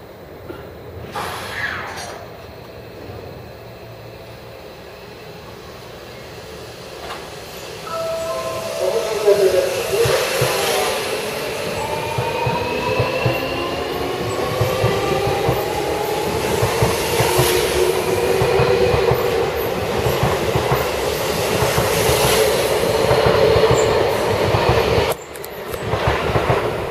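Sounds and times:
train wheels clattering on rails: 9.7 - 26.9.

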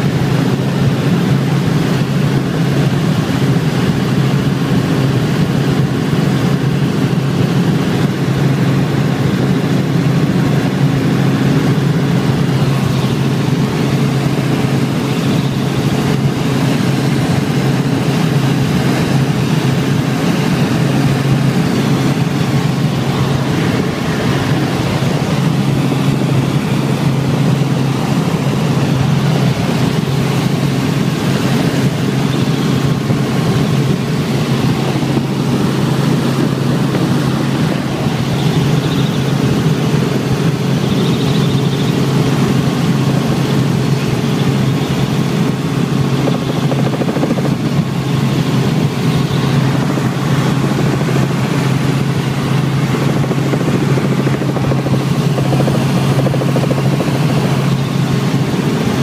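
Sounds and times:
helicopter engine and rotor hum: 0.0 - 59.0
steady rushing noise: 0.0 - 59.0.

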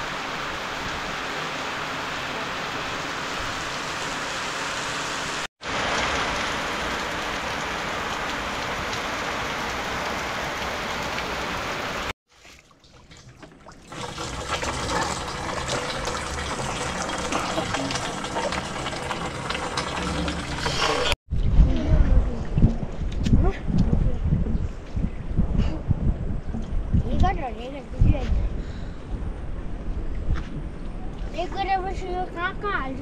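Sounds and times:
steady rain: 0.0 - 12.1, 13.9 - 21.2.

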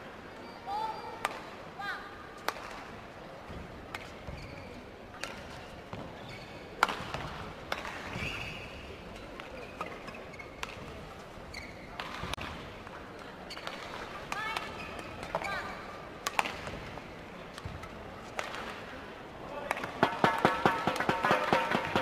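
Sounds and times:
shoe squeaks on court floor: 4.0 - 4.9, 6.1 - 6.8, 8.1 - 8.9, 9.5 - 10.9, 11.5 - 12.2, 13.5 - 13.8
racket hitting shuttlecock: 16.2 - 16.8, 19.7 - 22.0.

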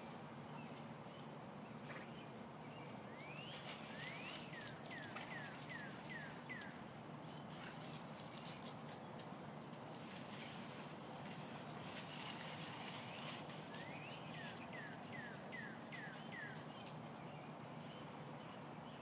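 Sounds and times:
leaves rustling and crackling: 10.3 - 14.0.

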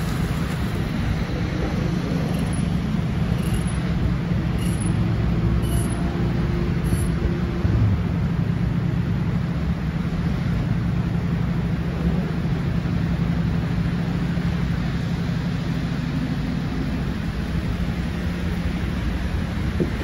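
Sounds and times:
bus engine humming: 0.0 - 20.0
idling traffic: 0.0 - 20.0.

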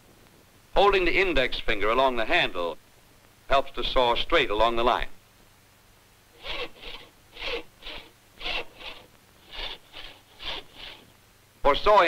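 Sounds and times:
hand saw cutting a board: 6.4 - 11.1.

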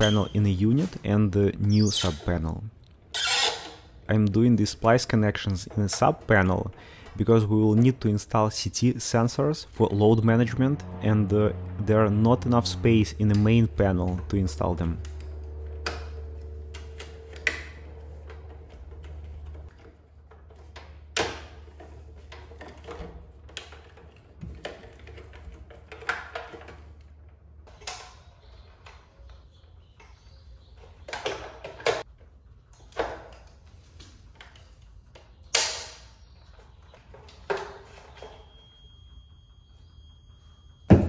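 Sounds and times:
low steady hum: 4.0 - 19.8.

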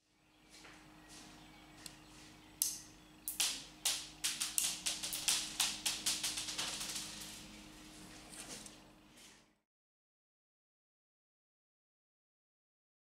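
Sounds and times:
faint steady hum: 0.0 - 9.6.

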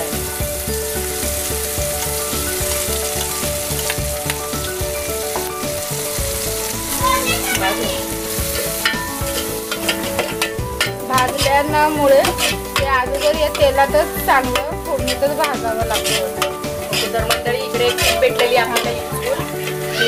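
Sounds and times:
masala sizzling in hot oil: 0.0 - 20.0
steel ladle scraping pot: 8.2 - 20.0.

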